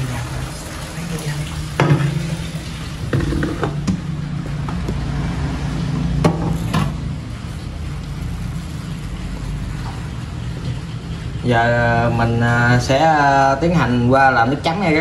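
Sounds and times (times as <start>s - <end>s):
liquid poured into colander: 0.0s - 3.8s
pot knocking: 3.1s - 4.0s.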